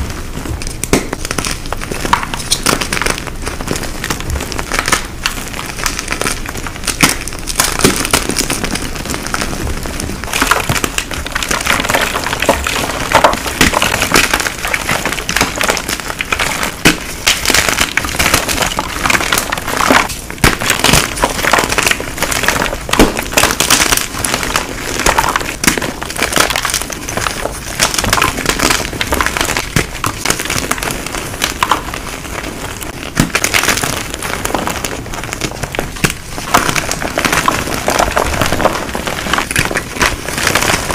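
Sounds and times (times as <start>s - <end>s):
chalk blocks crunching: 0.0s - 40.9s.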